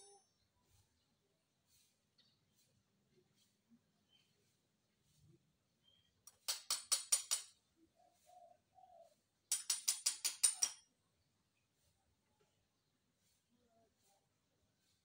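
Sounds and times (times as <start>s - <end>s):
dove cooing: 8.0s - 9.1s.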